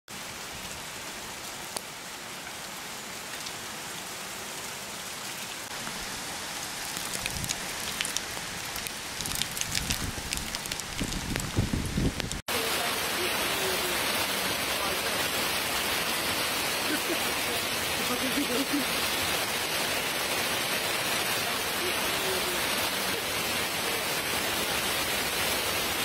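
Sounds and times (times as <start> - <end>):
heavy rain and hail: 0.1 - 26.0
dull low bumps: 6.9 - 12.4.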